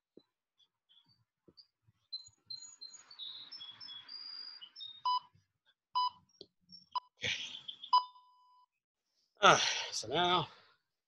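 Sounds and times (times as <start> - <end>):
birds chirping: 0.6 - 8.3
interval timer beeps: 7.9 - 8.7.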